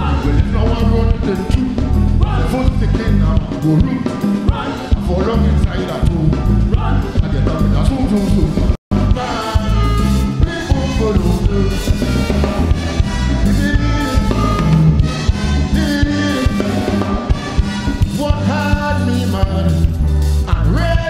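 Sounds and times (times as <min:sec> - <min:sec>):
live calypso band playing: 0:00.0 - 0:21.0.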